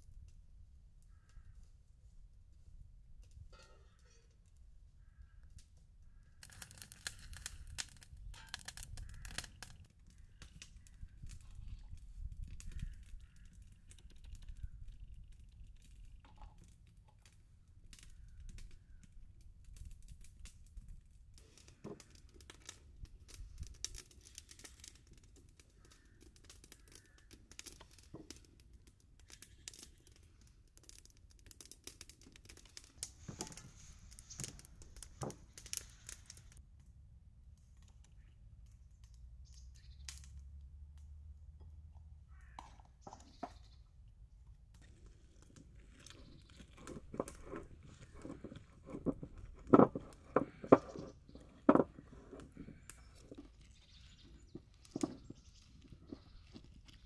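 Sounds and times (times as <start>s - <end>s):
crinkling and rustling: 19.8s - 36.6s, 44.8s - 57.0s.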